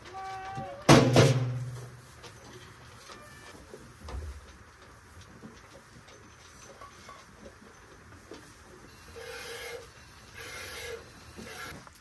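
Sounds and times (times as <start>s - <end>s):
goat bleating: 0.0s - 0.9s.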